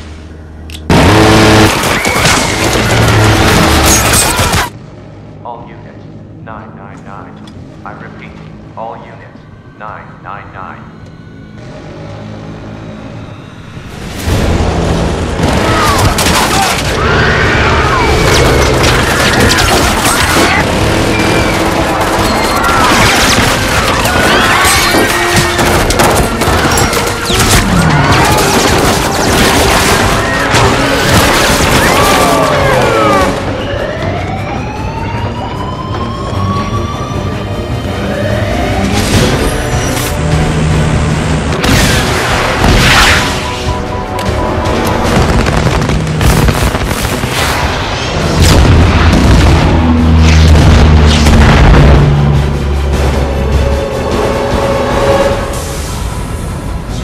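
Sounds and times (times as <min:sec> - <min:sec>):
film music score: 0:00.0 - 0:57.0
rapid automatic gunfire: 0:18.3 - 0:27.3
booms and crashing impacts: 0:44.5 - 0:52.4
gunfire: 0:44.7 - 0:52.0.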